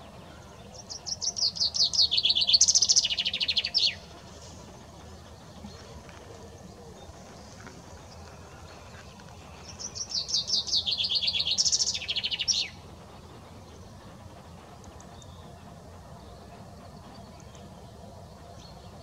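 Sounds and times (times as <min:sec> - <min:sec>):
chaffinch singing: 0:00.0 - 0:15.6
faint background noise: 0:00.0 - 0:19.0.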